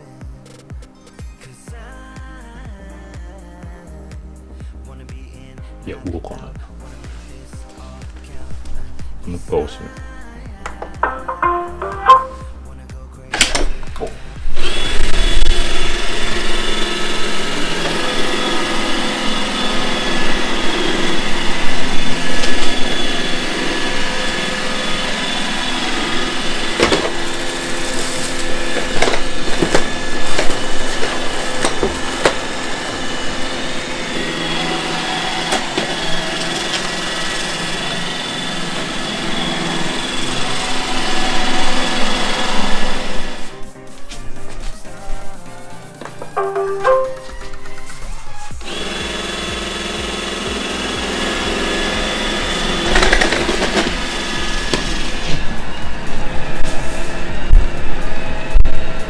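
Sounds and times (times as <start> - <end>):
robot vacuum bumping: 10.7 - 12.5, 26.2 - 33.1
robot vacuum whining: 13.8 - 43.6, 46.0 - 58.5.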